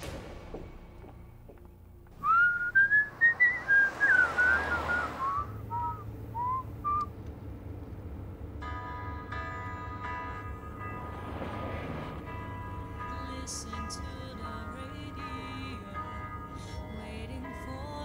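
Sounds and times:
person whistling a tune: 2.2 - 7.1.

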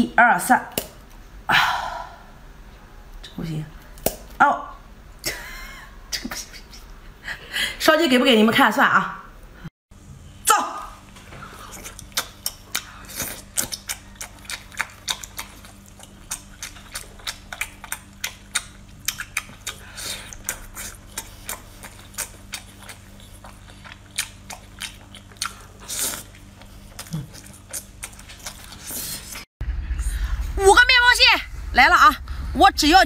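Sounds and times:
mouth chewing with wet smacks: 11.5 - 29.4.

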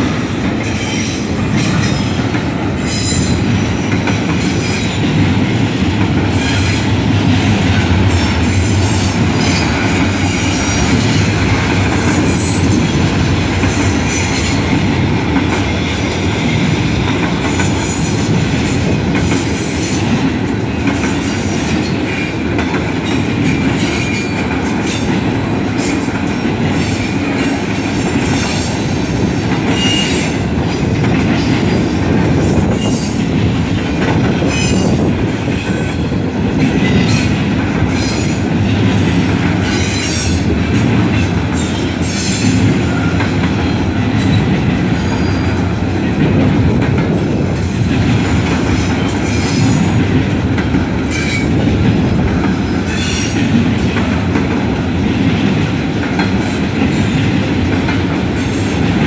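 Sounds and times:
steel wheels rumbling on rail: 0.0 - 59.0.

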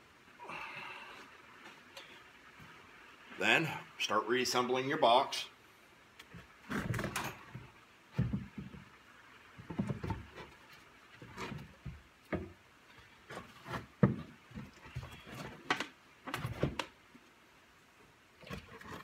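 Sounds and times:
wooden box sides knocking and scraping: 6.6 - 8.9, 9.6 - 12.6, 13.3 - 16.8.

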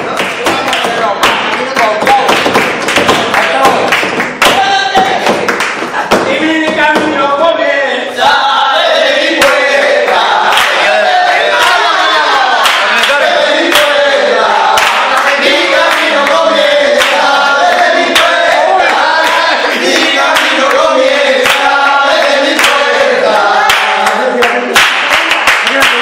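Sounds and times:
handclaps keeping time: 0.0 - 6.2, 9.4 - 11.0, 12.6 - 14.0, 14.7 - 23.0, 23.6 - 26.0
group of people singing: 6.0 - 24.7.

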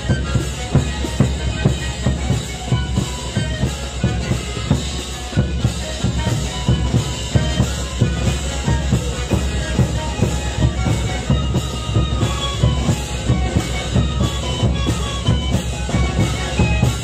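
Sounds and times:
bass drums marching beat: 0.0 - 17.0
panpipes melody: 0.0 - 17.0.

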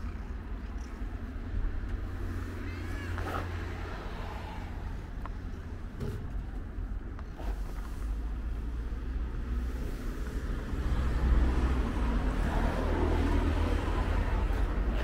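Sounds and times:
low rumble of street traffic: 0.0 - 15.0.

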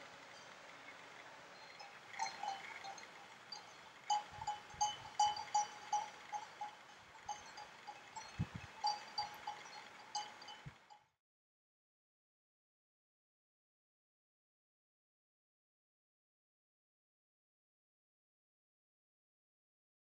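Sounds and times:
metal bells clanking: 0.3 - 10.9.

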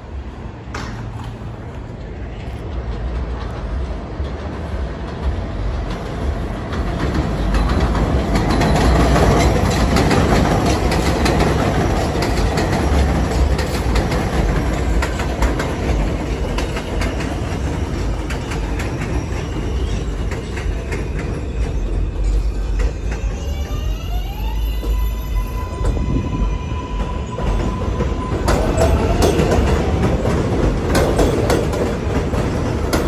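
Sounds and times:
heavy train rumble: 0.0 - 33.0
train wheels clattering over rail joints: 2.7 - 23.3, 27.0 - 33.0.

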